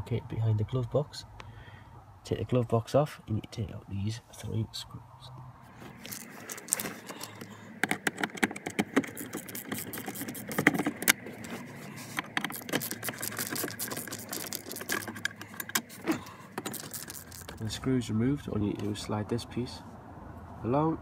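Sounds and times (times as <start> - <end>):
screwdriver clicks and rattles: 6.0 - 11.2, 12.1 - 17.6.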